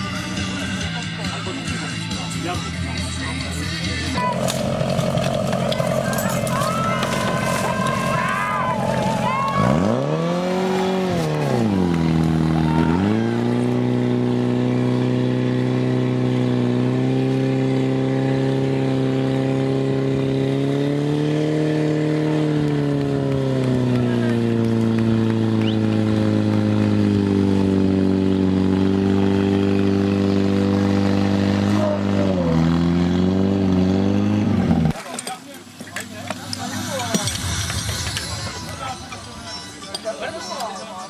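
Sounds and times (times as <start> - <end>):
pump engine at high revs: 4.0 - 35.3.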